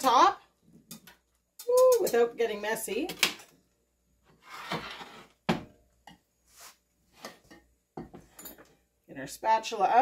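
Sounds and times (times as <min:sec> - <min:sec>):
cookware scraping: 0:04.3 - 0:05.6.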